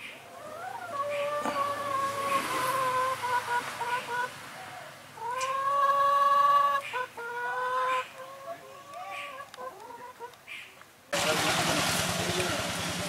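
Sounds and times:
faint wavering animal cries: 0:00.3 - 0:03.4.

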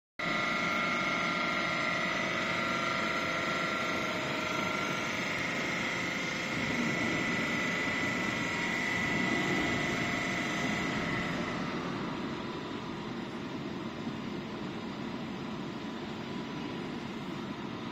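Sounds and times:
hydraulic pump whining: 0:00.3 - 0:13.8.

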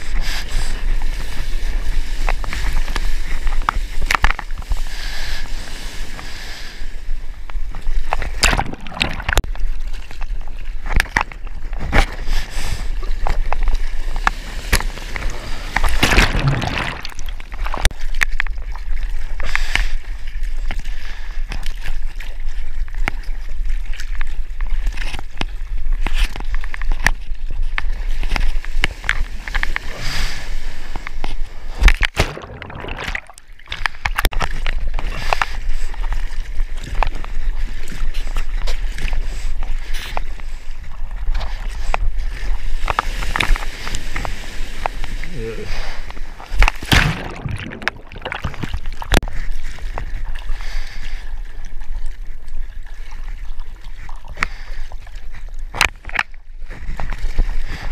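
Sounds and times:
water splashing around a surfboard: 0:07.5 - 0:57.9
hand-paddling splashes: 0:08.2 - 0:09.4, 0:14.6 - 0:18.8, 0:31.8 - 0:34.3, 0:46.5 - 0:50.1.

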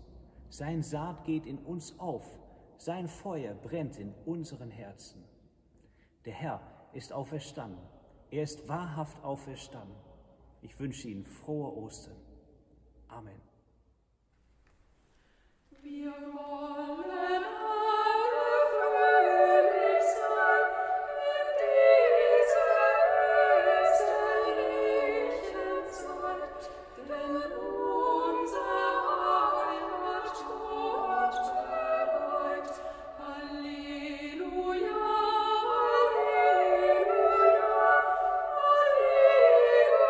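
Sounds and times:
women singing a cappella: 0:15.7 - 0:40.0.

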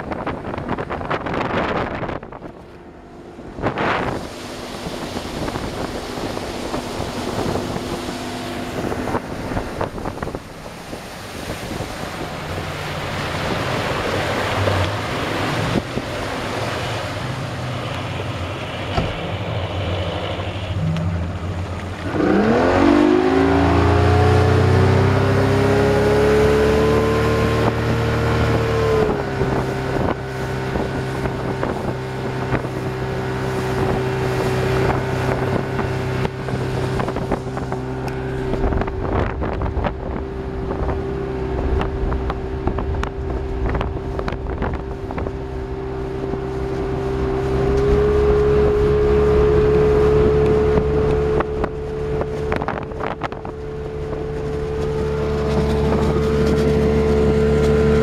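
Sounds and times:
outboard motor running: 0:00.0 - 0:58.0
water rushing past: 0:00.0 - 0:58.0
wind rushing: 0:03.4 - 0:17.6, 0:22.0 - 0:46.5.

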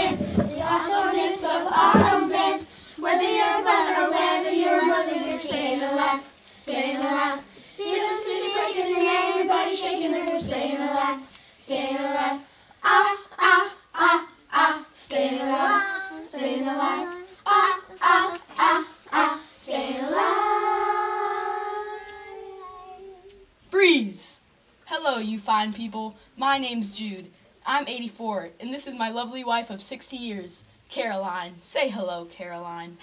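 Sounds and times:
children singing: 0:00.0 - 0:23.2.

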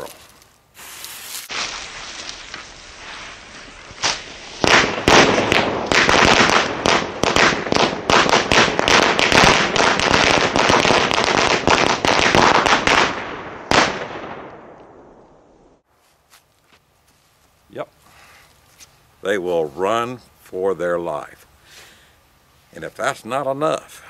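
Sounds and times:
firecrackers cracking: 0:00.0 - 0:15.0.

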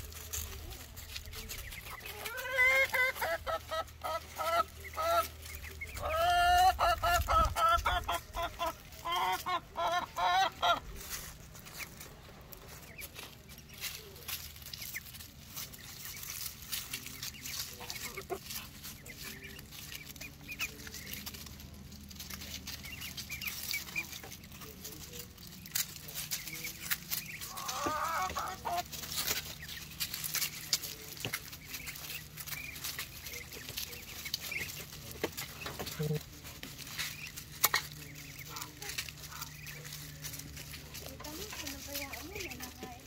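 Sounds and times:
hen clucking: 0:00.0 - 0:43.0
rustling in dry leaves: 0:00.0 - 0:43.0
bird calls: 0:10.4 - 0:21.6, 0:22.2 - 0:43.0.

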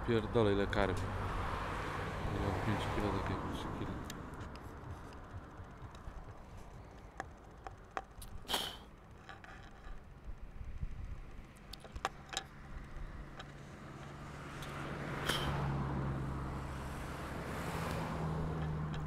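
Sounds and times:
sharp clicks: 0:09.9 - 0:13.6.

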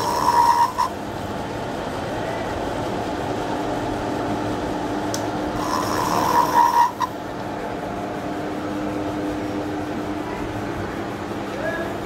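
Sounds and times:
high squeal from cutter: 0:00.0 - 0:00.9, 0:05.6 - 0:07.1
milling machine humming: 0:00.0 - 0:12.0.

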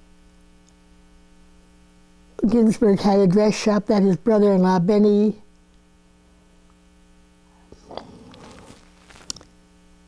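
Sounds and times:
electrical mains hum: 0:00.0 - 0:10.0
mouth and breath noise: 0:07.5 - 0:09.2.

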